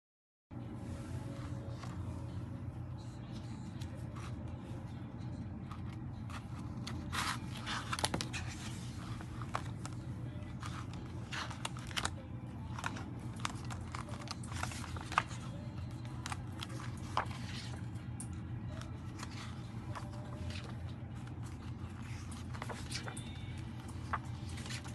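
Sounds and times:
low background noise: 0.6 - 24.9
paper pages rustling and flipping: 5.3 - 24.9.

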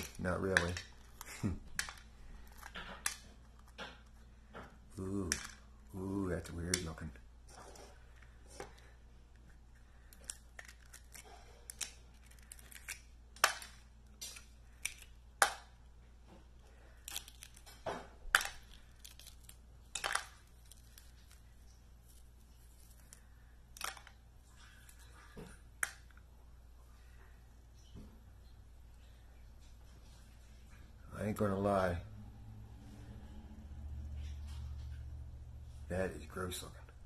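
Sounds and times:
egg shell cracking by hand: 0.0 - 4.2, 5.0 - 5.8, 8.7 - 15.8, 16.6 - 26.2.

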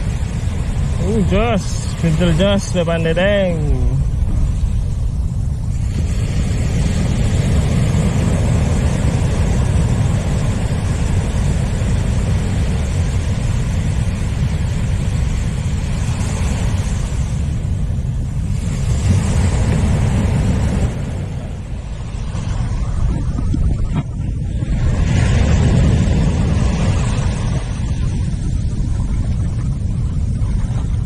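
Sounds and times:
surf washing on beach: 0.0 - 31.0
wind buffeting microphone: 0.0 - 31.0.

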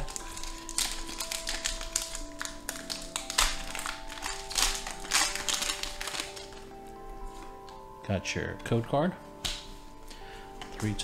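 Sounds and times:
foil pack ripping and rustling: 0.0 - 6.8
background music with held notes: 0.0 - 11.0.

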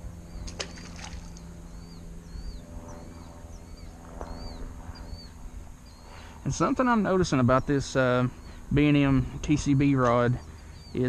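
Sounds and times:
fish splashing into water: 0.4 - 1.5.

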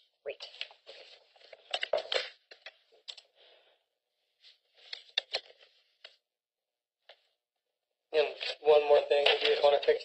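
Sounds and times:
paper rustling: 0.5 - 2.8, 4.4 - 6.2, 8.2 - 9.9.

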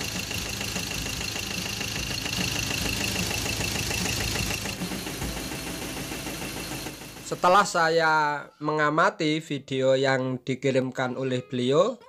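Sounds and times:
diesel engine idling rough: 0.0 - 7.7
engine knocking clatter: 0.0 - 7.8.

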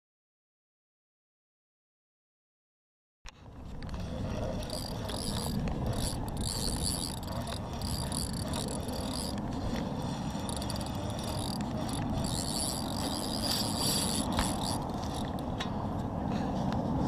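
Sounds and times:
fishing reel whirring: 3.4 - 15.5.

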